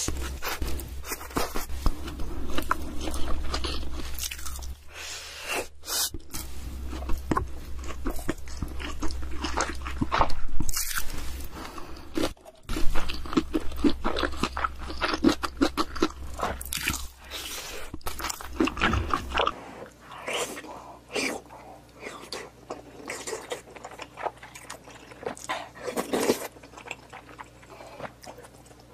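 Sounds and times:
low hum: 0.0s - 19.6s
person chewing crunchy food: 0.0s - 28.9s.

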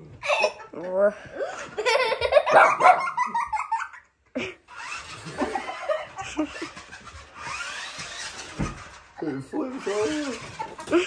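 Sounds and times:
person laughing hard: 1.6s - 4.7s, 5.3s - 6.8s.

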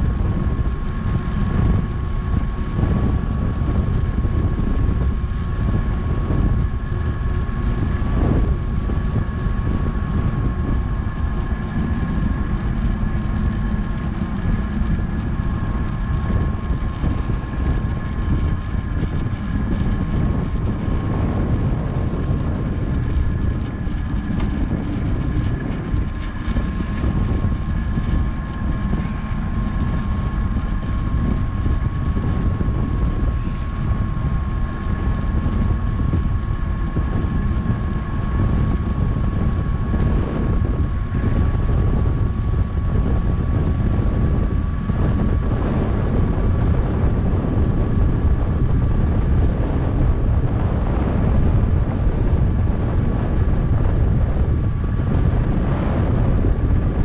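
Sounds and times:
bicycle tyres rolling on road: 0.0s - 57.0s
wind buffeting microphone: 0.0s - 57.0s.

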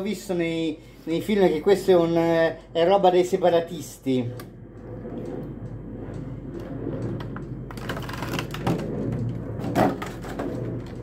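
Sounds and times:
plastic packaging crackling: 7.7s - 8.8s.

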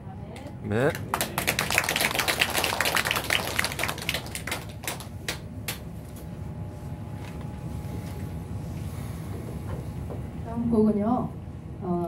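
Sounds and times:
audience clapping: 0.7s - 5.8s.

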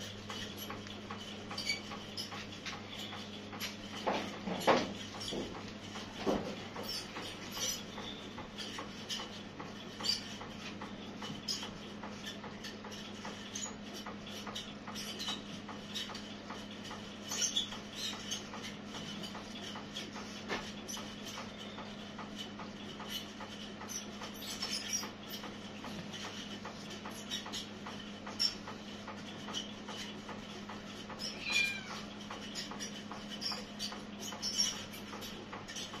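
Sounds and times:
cat meowing: 31.3s - 32.1s.

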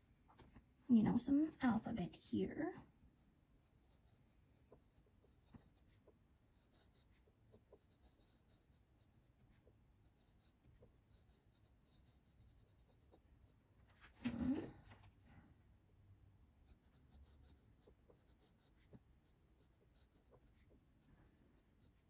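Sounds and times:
pen nib scratching paper: 3.2s - 15.1s, 16.6s - 22.0s.

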